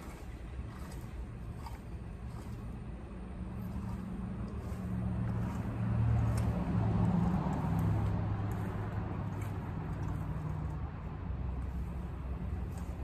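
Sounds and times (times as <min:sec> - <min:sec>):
vehicle engine passing by: 0:03.3 - 0:13.0.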